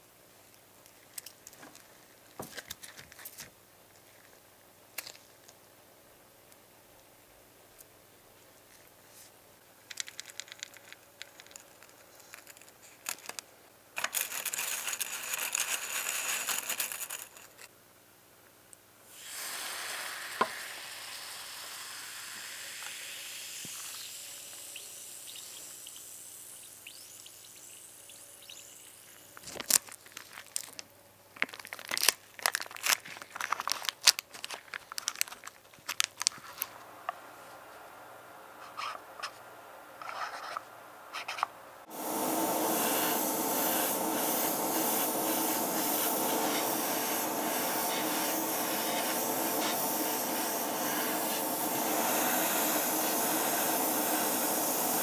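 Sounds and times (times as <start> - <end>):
loud burst of hiss: 19.1 - 29.4, 41.9 - 55.0
liquid fizzing in a cup: 19.2 - 29.3.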